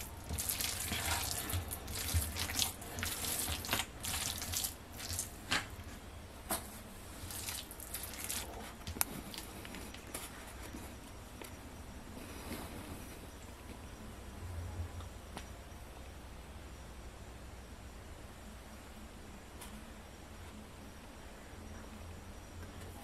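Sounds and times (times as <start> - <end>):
hand kneading wet minced meat: 0.0 - 6.0, 7.1 - 10.8.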